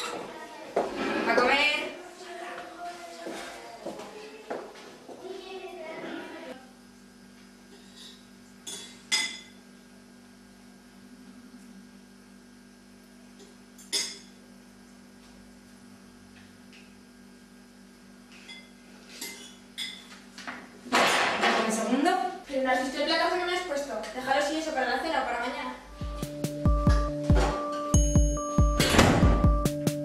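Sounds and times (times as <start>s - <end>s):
low steady hum: 6.4s - 20.1s
cutlery clinking against plates: 7.7s - 9.6s, 13.8s - 14.4s, 18.4s - 20.2s.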